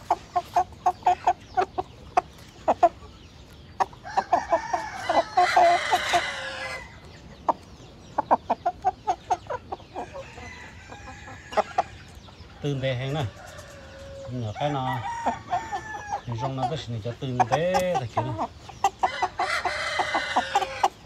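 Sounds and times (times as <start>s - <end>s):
rooster clucking: 0.0s - 12.2s, 13.2s - 21.0s
rooster crowing raspily: 4.0s - 7.0s, 10.0s - 12.0s, 13.2s - 16.3s, 19.0s - 21.0s.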